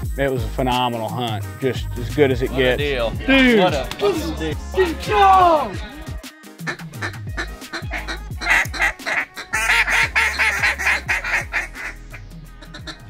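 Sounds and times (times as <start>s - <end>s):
music with deep bass line: 0.0s - 13.0s
duck quacking: 6.6s - 13.0s.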